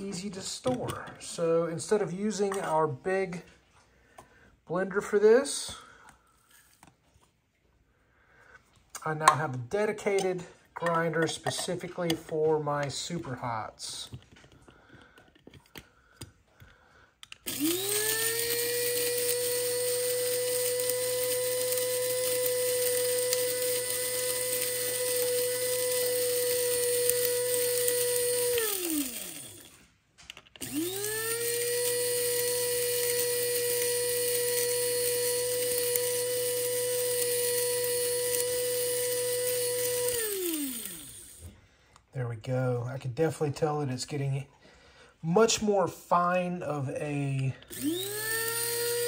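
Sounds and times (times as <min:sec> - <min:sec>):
coffee grinder motor whining: 0:17.2 - 0:41.6, 0:47.6 - 0:49.0.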